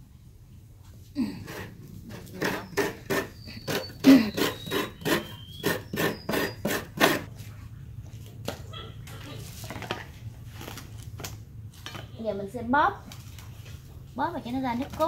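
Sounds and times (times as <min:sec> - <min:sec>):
coconut rasping on grater blade: 0:01.2 - 0:07.3.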